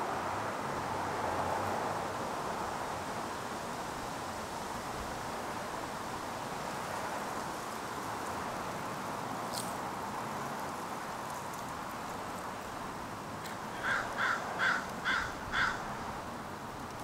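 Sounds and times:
steady background hiss: 0.0s - 17.0s
crow cawing: 13.7s - 15.9s.

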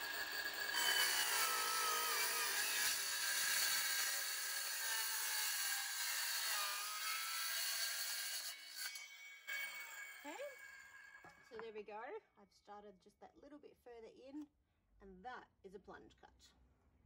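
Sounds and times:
circular saw cutting wood: 0.0s - 11.4s.

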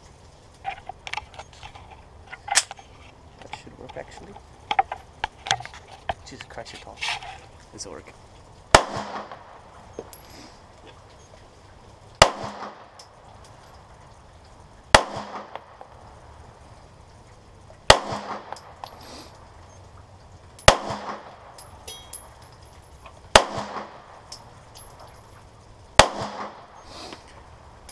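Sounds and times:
pistol shots with echo: 8.7s - 9.5s, 12.2s - 12.9s, 14.9s - 15.6s, 17.9s - 18.5s, 20.6s - 21.4s, 23.3s - 24.1s, 26.0s - 26.7s.

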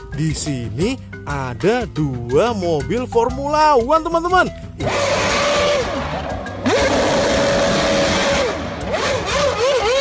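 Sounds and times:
racing car engine revving: 4.8s - 10.0s
spinning tyres hissing: 4.8s - 10.0s.

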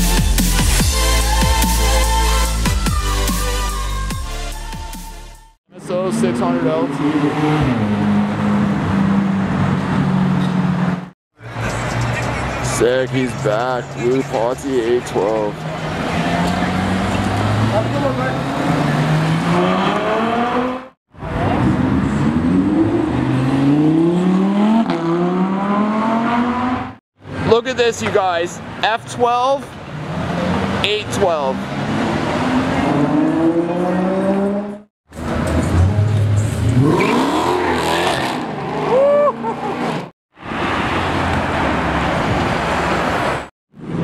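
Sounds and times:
car engine accelerating: 15.6s - 27.0s, 31.6s - 39.0s
car accelerating through upshifts: 15.7s - 27.0s, 31.6s - 38.9s.

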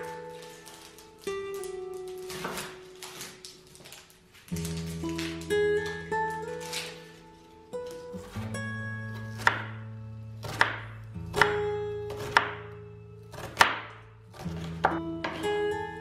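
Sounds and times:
acoustic guitar music: 0.0s - 16.0s
knife chopping on wooden board: 9.3s - 9.8s, 10.4s - 12.7s, 13.3s - 15.4s.

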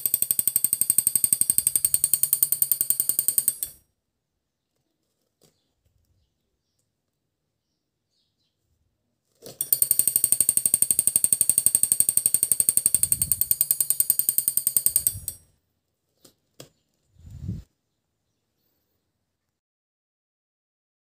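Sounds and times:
metallic alarm rattle with ringing: 0.0s - 3.8s, 9.6s - 15.4s.

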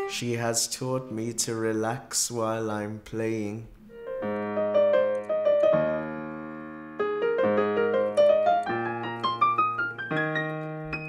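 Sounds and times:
digital piano playing: 3.8s - 11.0s.

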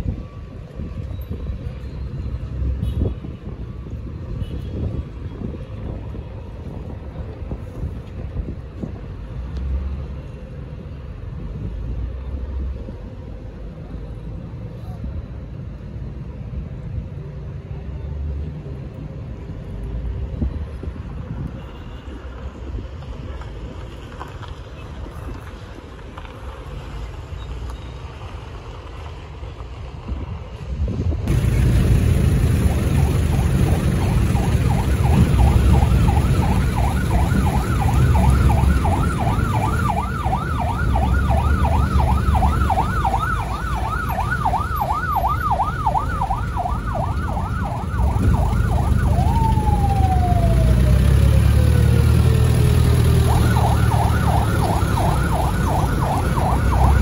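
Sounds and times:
emergency siren: 0.0s - 1.8s, 31.3s - 57.0s
low rumble: 30.8s - 50.9s.

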